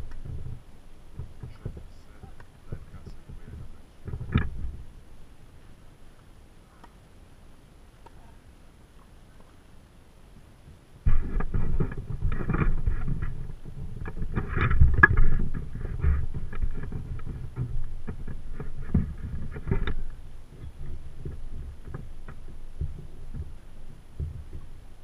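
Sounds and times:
wind buffeting microphone: 0:00.0 - 0:05.9, 0:10.6 - 0:25.0.

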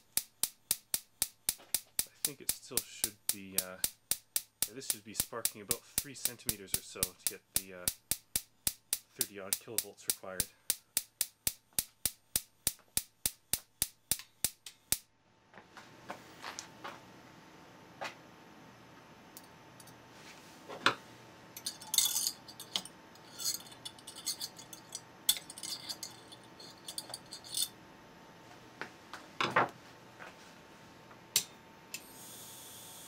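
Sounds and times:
screwdriver clicking on metal: 0:21.6 - 0:27.7.

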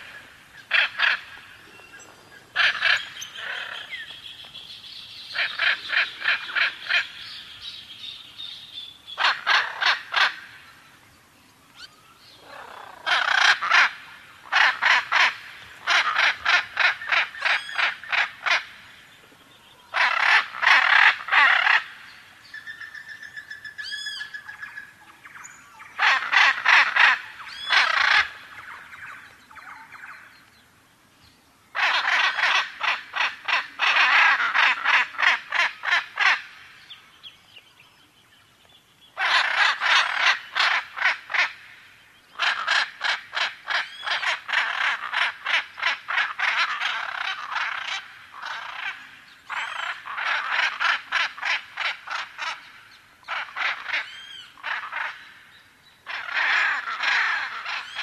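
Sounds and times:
macaw squawking: 0:00.0 - 0:01.6, 0:02.5 - 0:04.2, 0:05.3 - 0:07.4, 0:09.2 - 0:10.6, 0:12.4 - 0:18.8, 0:19.9 - 0:22.0, 0:26.0 - 0:30.1, 0:31.8 - 0:36.7, 0:39.2 - 0:41.7, 0:42.3 - 0:55.4, 0:56.0 - 0:58.0.

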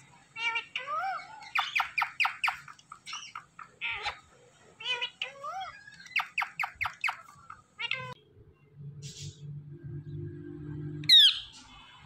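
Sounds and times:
parrots chirping: 0:00.1 - 0:08.2, 0:11.0 - 0:11.9
parrots squawking: 0:00.1 - 0:08.2, 0:11.1 - 0:11.7.

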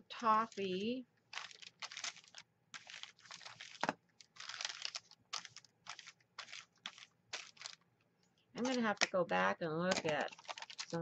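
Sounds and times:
paper crinkling: 0:00.2 - 0:07.8, 0:09.9 - 0:11.0.

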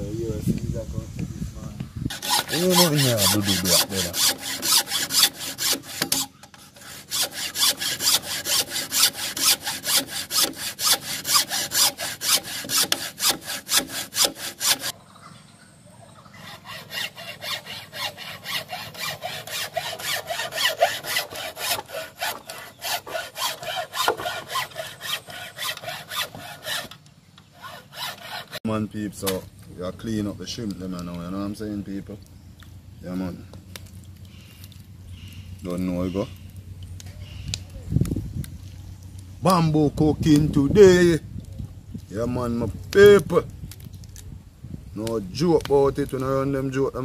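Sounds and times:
hand saw cutting bamboo: 0:02.1 - 0:14.9, 0:16.4 - 0:28.6.

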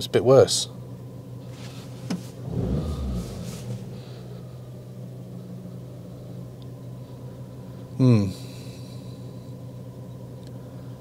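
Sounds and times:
car engine idling roughly: 0:01.5 - 0:07.7.

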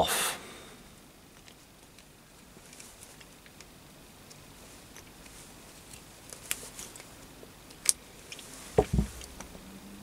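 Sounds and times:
dull knock and thud: 0:08.8 - 0:09.2.

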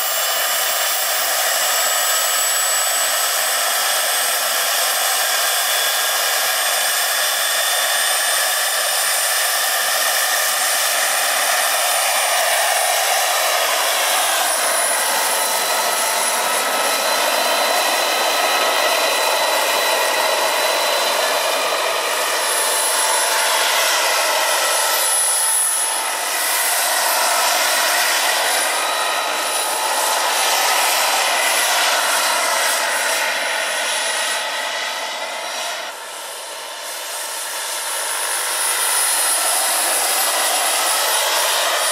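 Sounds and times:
model helicopter turbine whine: 0:00.0 - 0:41.9.

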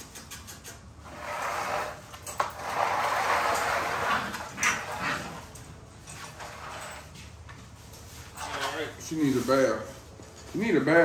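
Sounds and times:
puppies rustling in wood shavings: 0:07.5 - 0:11.0.

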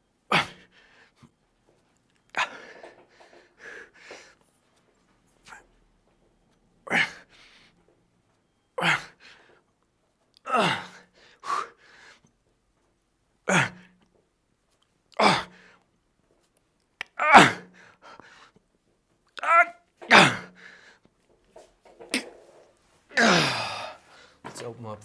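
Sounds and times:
man grunting with effort: 0:10.5 - 0:11.0, 0:15.2 - 0:15.5, 0:17.2 - 0:17.7, 0:19.4 - 0:20.6, 0:23.1 - 0:24.0.

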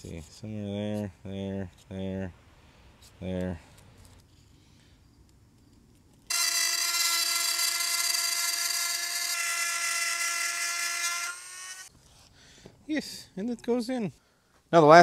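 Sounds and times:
rotary tool cutting acrylic: 0:06.3 - 0:11.9.

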